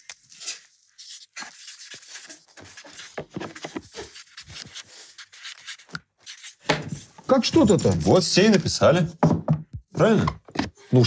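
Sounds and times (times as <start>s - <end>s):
markers scratching on cards: 1.0s - 6.6s.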